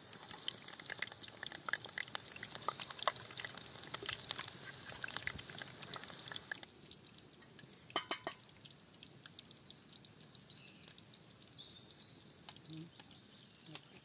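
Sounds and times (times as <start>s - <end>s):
patties sizzling in oil: 0.0s - 14.0s
utensil clinking on frying pan: 8.0s - 8.4s.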